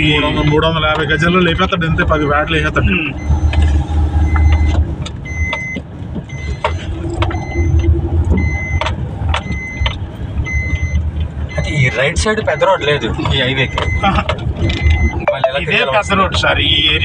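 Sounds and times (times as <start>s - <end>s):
car engine and tyres rumbling: 0.0s - 17.0s
knocks and rattles from bumps: 4.3s - 7.4s
short high electronic beeps: 6.3s - 8.8s.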